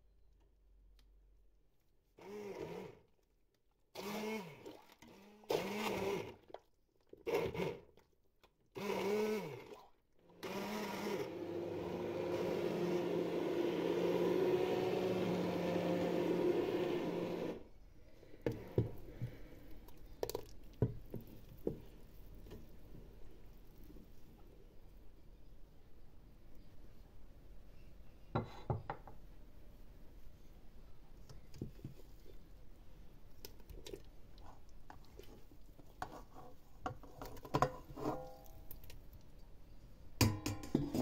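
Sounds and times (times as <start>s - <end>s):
immersion blender whirring: 2.2s - 3.0s, 4.0s - 6.4s, 7.2s - 7.8s, 8.8s - 17.6s
wooden spoon stirring a pot: 18.2s - 24.4s, 33.5s - 39.1s.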